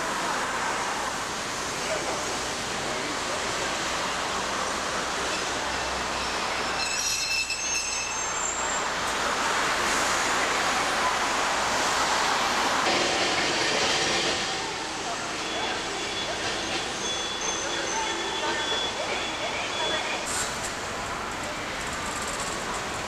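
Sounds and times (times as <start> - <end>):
streetcar running on track: 0.0 - 23.0
steel wheels squealing on rails: 4.8 - 23.0
passing road traffic: 7.9 - 23.0.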